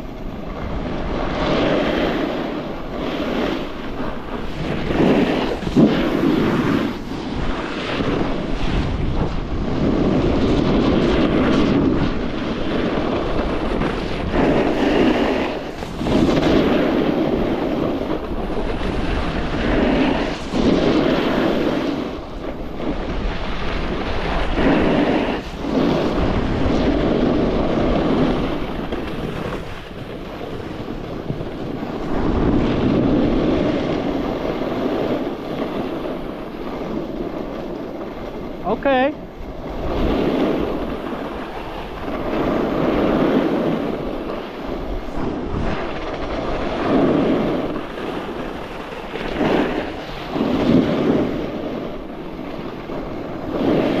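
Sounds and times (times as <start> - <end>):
snowboard scraping on snow: 0.0 - 54.0
wind on microphone: 0.0 - 54.0.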